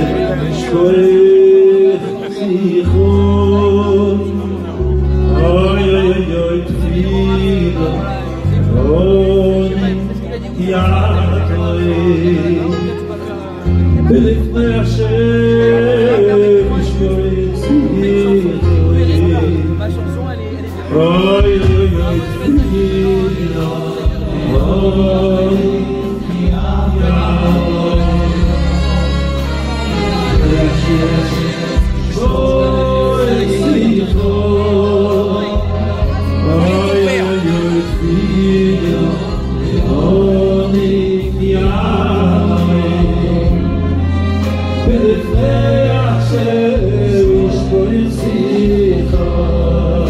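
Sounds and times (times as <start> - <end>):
low instrumental accompaniment: 0.0 - 50.0
man singing into microphone: 0.0 - 50.0
voices singing along: 20.9 - 50.0.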